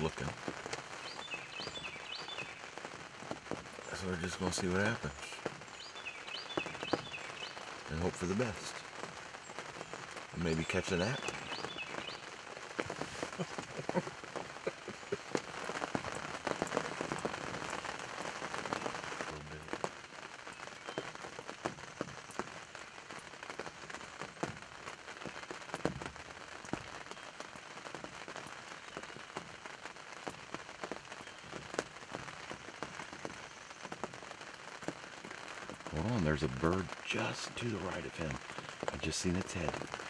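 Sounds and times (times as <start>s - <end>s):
rain tapping on fabric: 0.0s - 40.0s.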